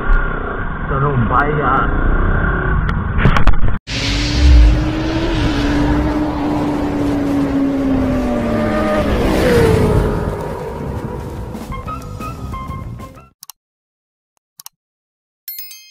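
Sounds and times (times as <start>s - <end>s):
vehicle engine running loudly: 3.9s - 12.1s.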